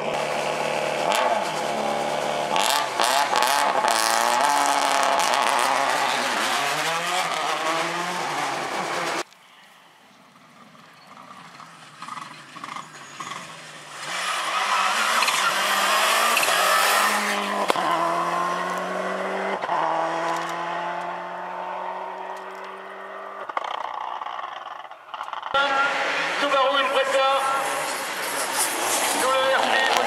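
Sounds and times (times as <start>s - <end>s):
rally car engine at full throttle: 0.0s - 9.3s, 10.7s - 30.0s
tyre and gravel noise: 1.2s - 19.0s, 27.4s - 30.0s.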